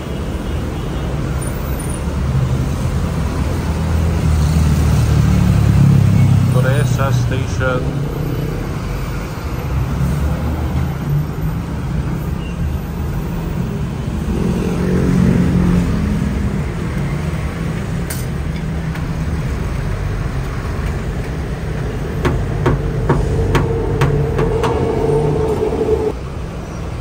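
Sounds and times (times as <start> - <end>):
road traffic noise: 0.0 - 27.0
vehicle passing: 21.4 - 26.3.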